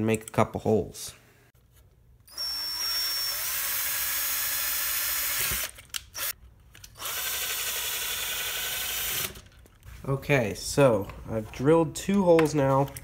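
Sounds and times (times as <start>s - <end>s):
cordless drill drilling: 2.3s - 6.4s, 7.0s - 9.4s.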